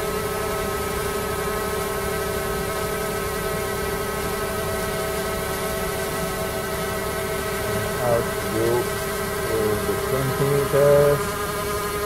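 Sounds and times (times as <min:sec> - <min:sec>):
drone propellers buzzing: 0:06.0 - 0:12.0.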